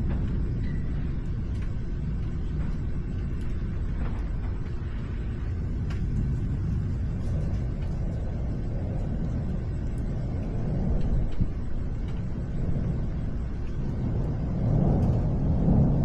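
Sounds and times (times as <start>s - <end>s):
distant thunder rumbling: 0.0s - 16.0s.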